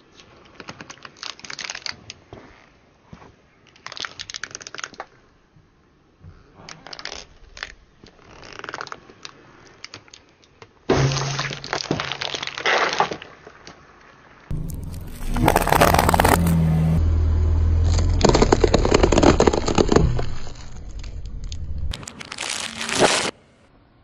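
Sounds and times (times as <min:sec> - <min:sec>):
car tyre crushing plastic tube: 0:14.5 - 0:17.0, 0:17.8 - 0:23.4.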